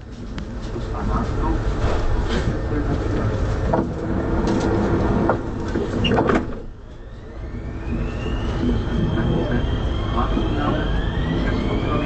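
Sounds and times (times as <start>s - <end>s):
train rumble with knocks: 0.0s - 12.0s
traction drive whine rising: 3.9s - 12.0s.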